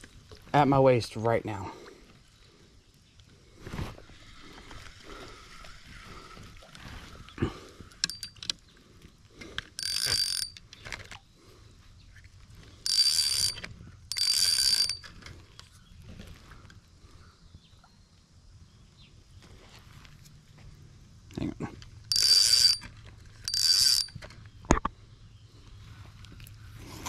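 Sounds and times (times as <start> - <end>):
fishing reel whirring: 8.0 - 8.5, 9.6 - 11.1, 12.8 - 15.8, 22.0 - 24.4
fishing reel clicks: 8.0 - 8.6, 9.6 - 11.1, 12.8 - 15.8, 22.1 - 24.4.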